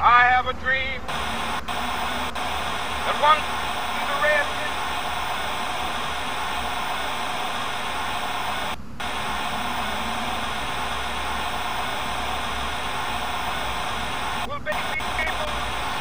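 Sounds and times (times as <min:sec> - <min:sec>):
radio static hiss: 0:01.1 - 0:16.0.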